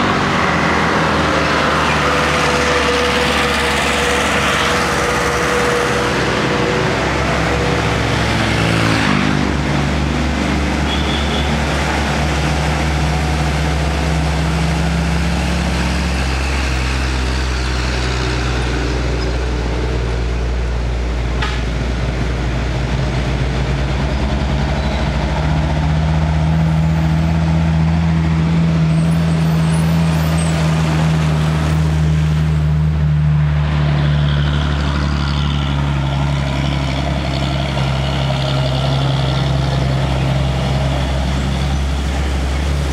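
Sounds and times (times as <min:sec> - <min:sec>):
diesel trucks driving past: 0:00.0 - 0:42.9.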